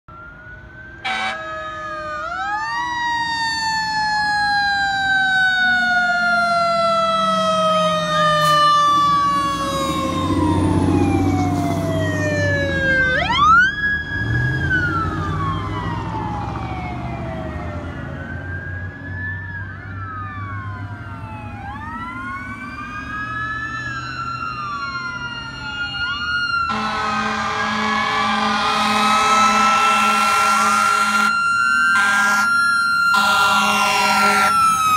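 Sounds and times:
electronic sirens wailing: 0.1 - 34.9
vehicle engine rumble: 0.2 - 30.6
loud horn-like tone: 1.0 - 1.4, 26.7 - 31.3, 32.0 - 32.5, 33.1 - 34.6.

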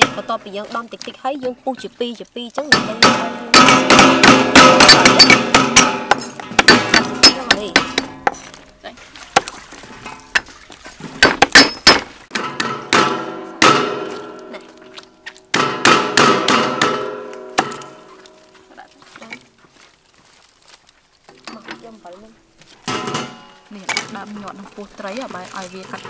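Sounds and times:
cleaver chopping on wooden block: 2.6 - 8.4, 9.3 - 9.6, 11.2 - 14.3, 15.3 - 18.1.

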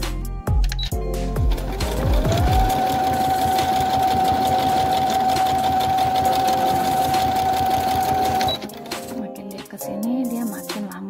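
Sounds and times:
sewing machine stitching: 1.4 - 9.2.

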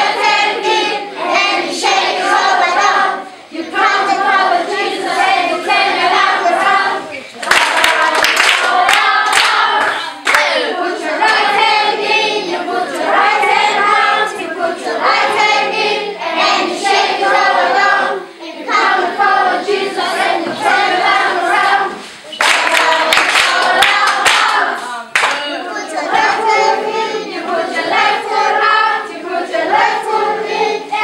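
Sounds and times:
children singing together: 0.0 - 31.0
hand clapping: 7.4 - 10.6, 22.4 - 25.5.

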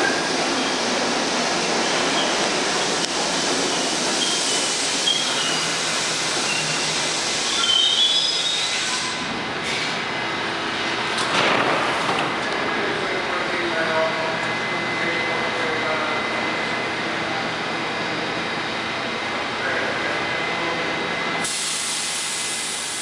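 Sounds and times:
train doors opening: 0.0 - 10.1, 10.8 - 13.0
train wheel and rail rumble: 0.0 - 23.0
high squeals of train brakes: 1.8 - 3.0, 3.7 - 10.0.

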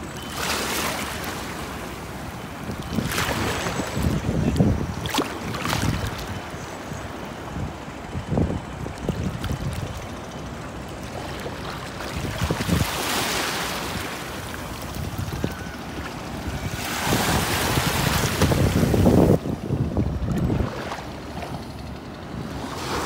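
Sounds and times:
wind buffeting microphone: 2.6 - 10.3, 11.5 - 13.1, 13.8 - 22.5
small waves washing on sand: 11.1 - 15.3, 15.9 - 19.4
rushing surf: 16.2 - 19.4.

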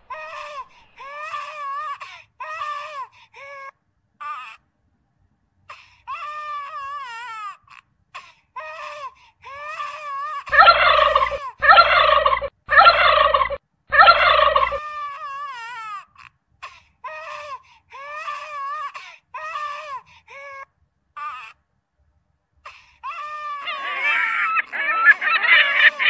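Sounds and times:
baby monkey whimpering: 9.6 - 16.0, 23.0 - 26.0
baby monkey screaming: 9.8 - 15.3, 23.0 - 26.0.

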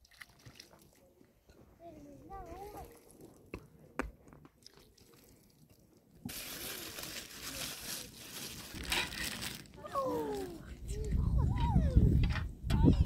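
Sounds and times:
plastic bag crinkling: 6.3 - 9.8.

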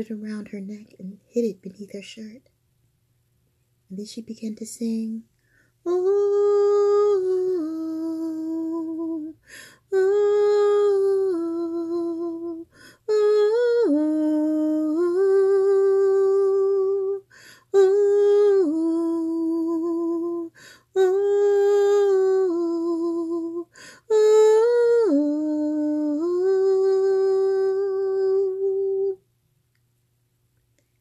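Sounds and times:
woman humming a lullaby: 5.9 - 29.2.

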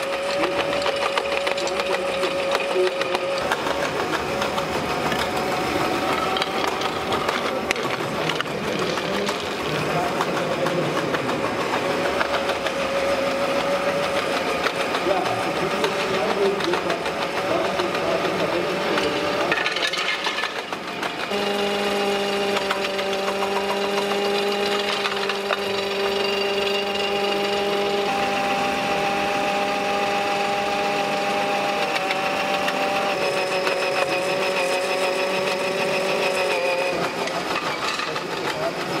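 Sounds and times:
stones rattling being crushed: 0.0 - 17.9, 18.8 - 21.3
motor hum: 0.0 - 39.0.

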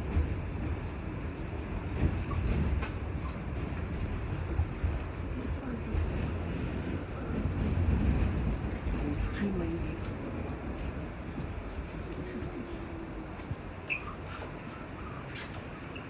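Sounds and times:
subway car rumbling on track: 0.0 - 16.0.

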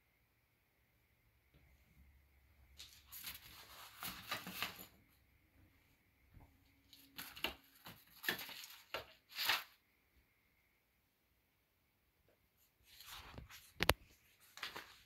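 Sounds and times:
faint low hum: 0.0 - 15.0
rustling handling noise: 2.7 - 5.3, 6.4 - 9.8, 12.6 - 15.0.

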